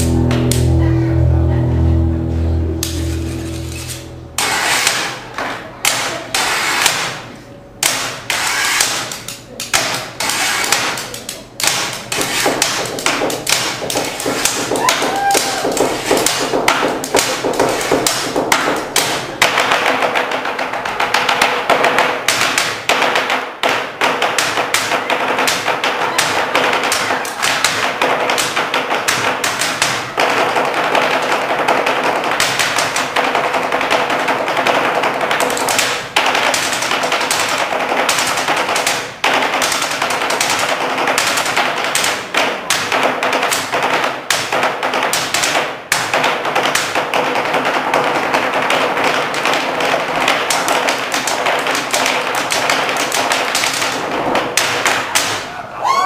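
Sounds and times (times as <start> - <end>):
rhythmic knocks on wooden table: 7.8 - 55.4.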